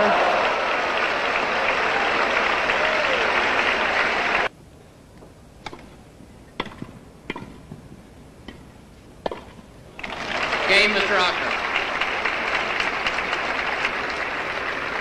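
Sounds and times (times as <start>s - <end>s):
crowd applauding: 0.0s - 4.5s, 10.0s - 15.0s.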